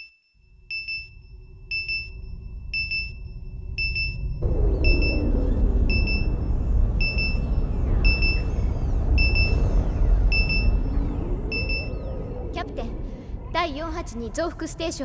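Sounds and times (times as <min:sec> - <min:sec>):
spaceship deep rumble: 0:00.4 - 0:15.0
falling whoosh: 0:03.4 - 0:13.6.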